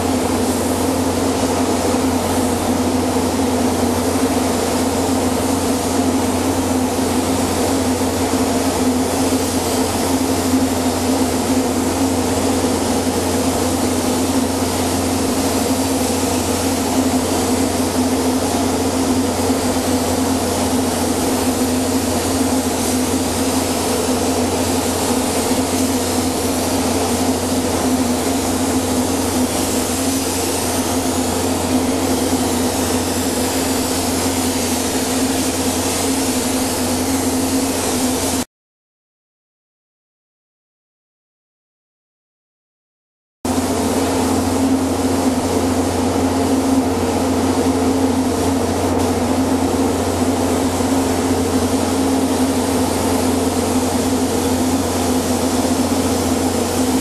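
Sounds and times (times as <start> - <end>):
paint spray gun hissing: 0.0 - 38.4, 43.5 - 57.0
machinery hum: 9.3 - 38.4.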